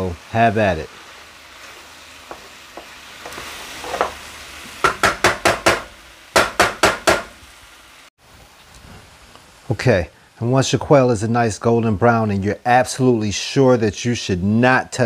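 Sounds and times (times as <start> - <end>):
food sizzling in frying pan: 0.0 - 15.0
spatula knocking and scraping pan: 2.2 - 4.2, 4.8 - 7.4.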